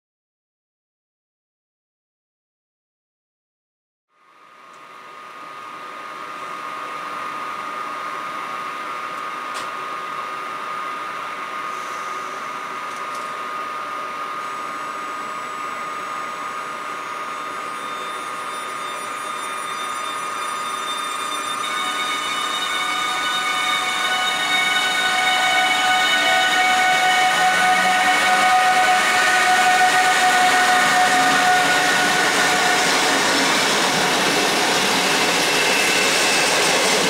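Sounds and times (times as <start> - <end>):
electric locomotive hum and whine: 4.1 - 37.0
higher steady tones: 15.0 - 37.0.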